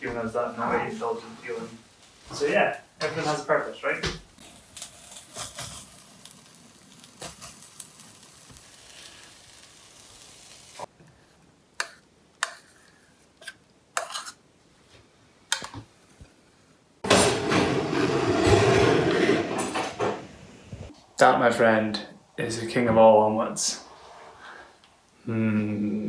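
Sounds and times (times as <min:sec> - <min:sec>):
omelette sizzling in a frying pan: 0:04.4 - 0:14.4
plastic spatula scraping and tapping: 0:13.4 - 0:14.4.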